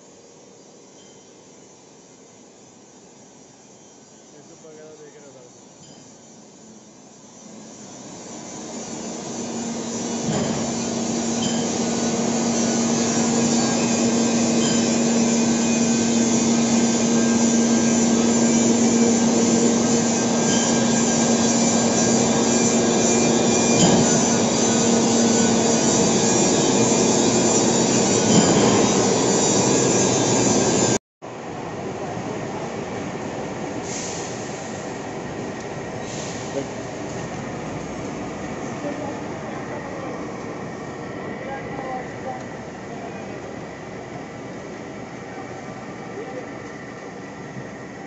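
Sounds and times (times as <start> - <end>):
tool cutting metal hiss: 3.8 - 30.9
lathe machine hum: 6.3 - 31.0.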